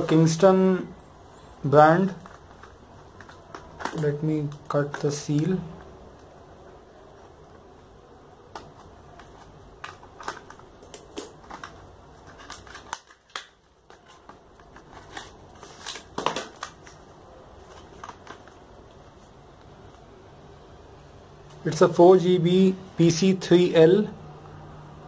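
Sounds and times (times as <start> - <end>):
packaging crinkling: 2.0 - 6.3, 8.4 - 19.4.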